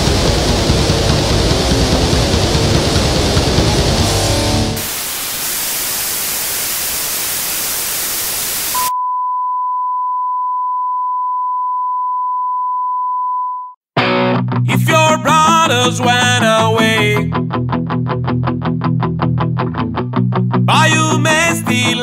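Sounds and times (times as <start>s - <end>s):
white noise hiss: 4.7s - 8.8s
test tone beep: 8.8s - 13.8s.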